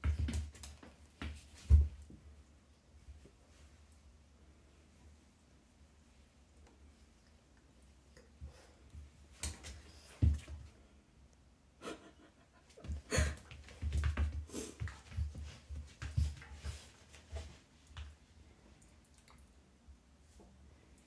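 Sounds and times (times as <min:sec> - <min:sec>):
cat and dog scuffling: 0:00.0 - 0:02.2, 0:12.4 - 0:18.3.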